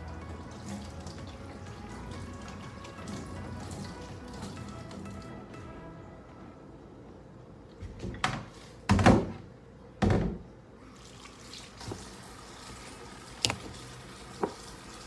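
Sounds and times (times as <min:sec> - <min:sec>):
tap water splashing into sink: 0:11.2 - 0:12.2, 0:13.3 - 0:15.0.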